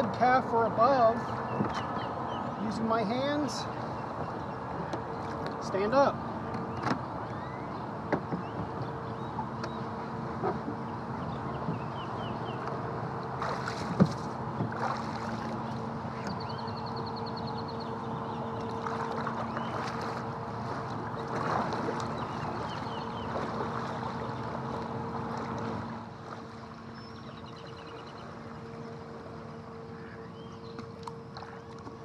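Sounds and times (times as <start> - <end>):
steady low hum: 0.0 - 32.0
water sloshing against hull: 0.0 - 32.0
paddle strokes splashing: 11.5 - 16.8, 18.2 - 30.1.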